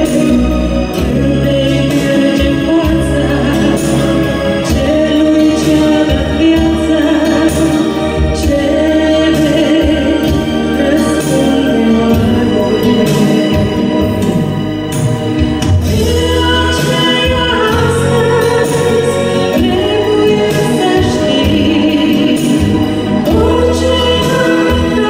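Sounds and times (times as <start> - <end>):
woman singing into a microphone: 0.0 - 15.0, 15.8 - 25.0
instrumental accompaniment: 0.0 - 25.0.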